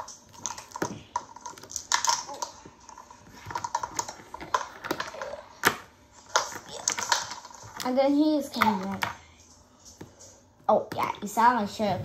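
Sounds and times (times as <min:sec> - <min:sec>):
plastic figures clacking: 0:00.0 - 0:09.2.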